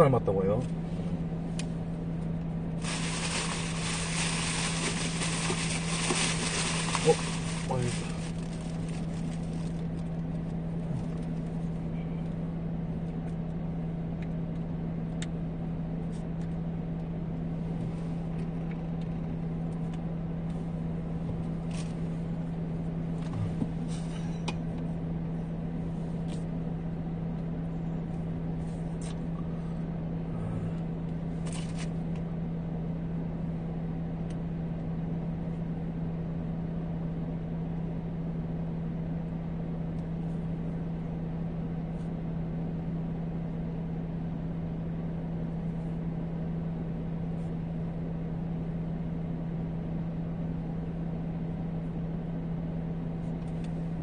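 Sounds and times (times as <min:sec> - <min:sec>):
car cabin hum: 0:00.0 - 0:12.4, 0:17.5 - 0:26.4.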